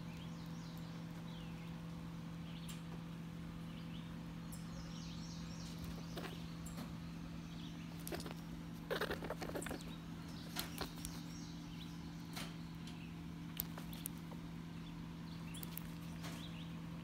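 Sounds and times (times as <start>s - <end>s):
steady low hum: 0.0s - 17.0s
rabbit kits rustling: 5.4s - 17.0s.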